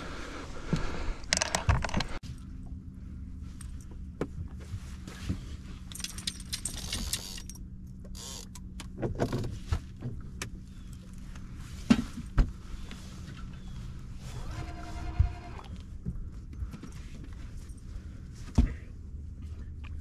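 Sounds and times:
steady low hum: 0.0s - 20.0s
fishing gear rattling and clicking: 1.2s - 2.2s, 5.8s - 9.4s.

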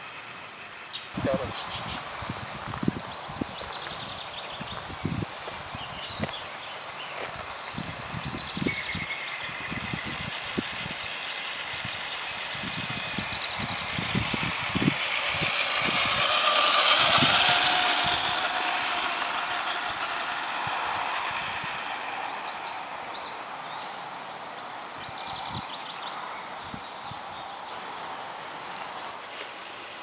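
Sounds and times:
tyres crunching on gravel: 4.7s - 8.0s
toy truck motor whine: 7.8s - 23.3s.

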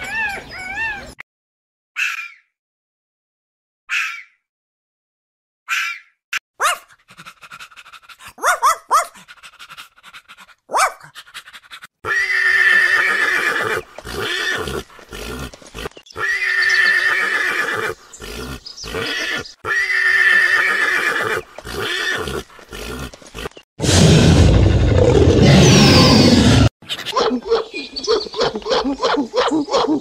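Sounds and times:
horse neighing: 12.1s - 23.1s.

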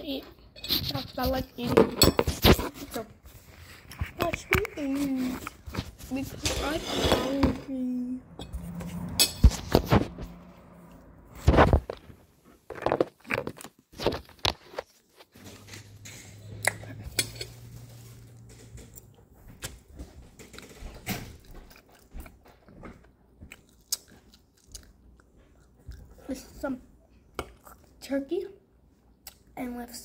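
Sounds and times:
person chewing food: 18.0s - 26.5s, 27.2s - 28.0s.

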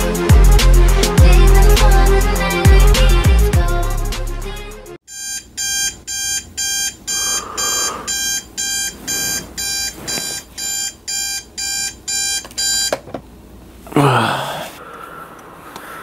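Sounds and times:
music: 0.0s - 5.0s
alarm clock beeping: 5.1s - 13.0s.

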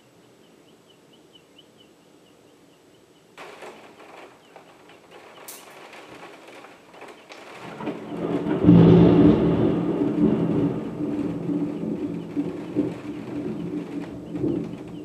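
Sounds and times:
rolling thunder: 3.4s - 15.0s.

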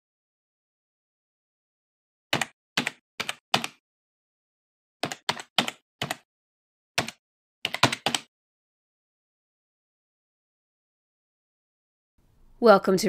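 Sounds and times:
keyboard key clicks: 7.0s - 8.3s.

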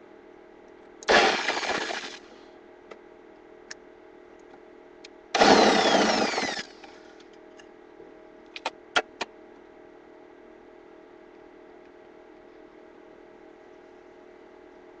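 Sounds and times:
power tool whining: 1.1s - 2.2s, 5.4s - 7.0s.

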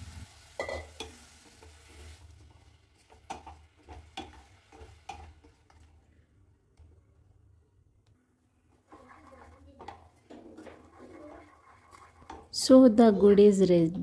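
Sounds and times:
spoon scraping a saucepan: 8.8s - 12.6s.

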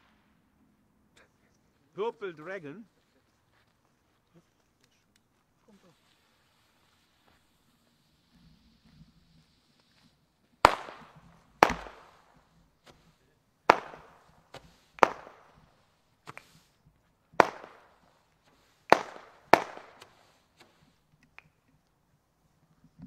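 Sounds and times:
faint firework pops: 10.0s - 21.6s
firework bangs with echo: 10.6s - 12.5s, 13.7s - 16.6s, 17.4s - 20.7s.

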